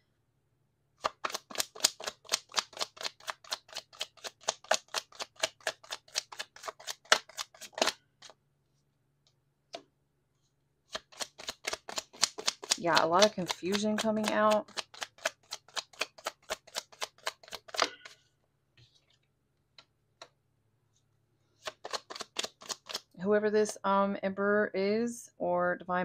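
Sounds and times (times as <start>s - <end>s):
cards being shuffled: 1.0s - 8.4s, 10.9s - 18.2s, 21.6s - 23.2s.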